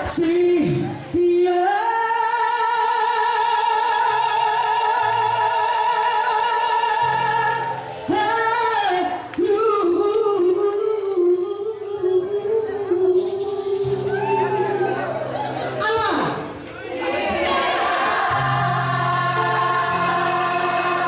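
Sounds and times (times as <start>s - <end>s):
woman singing into microphone: 0.0s - 15.2s.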